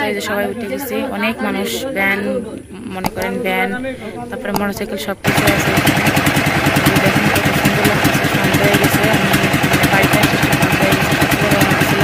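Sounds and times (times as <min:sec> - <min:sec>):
boat engine thumping: 0:03.0 - 0:12.0.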